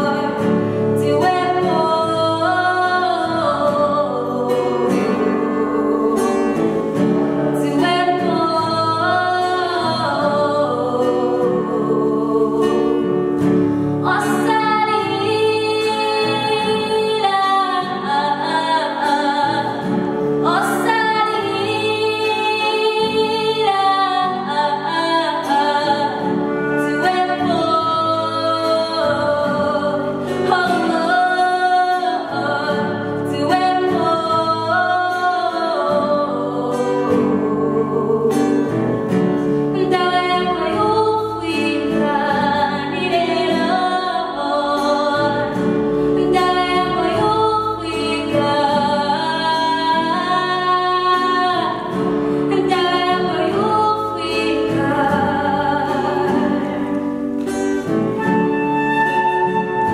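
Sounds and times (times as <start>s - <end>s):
backing voices singing: 0.0s - 59.9s
woman singing lead: 0.0s - 59.9s
sustained instrumental accompaniment: 25.8s - 29.0s.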